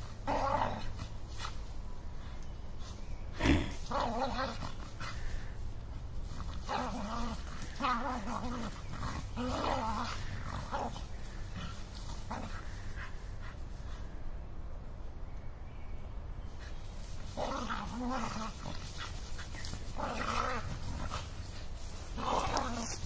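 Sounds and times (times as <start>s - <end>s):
dogs growling: 0.0s - 1.7s, 3.3s - 5.6s, 6.2s - 13.6s, 17.1s - 23.0s
dry leaves crackling: 0.0s - 14.2s, 16.4s - 23.0s.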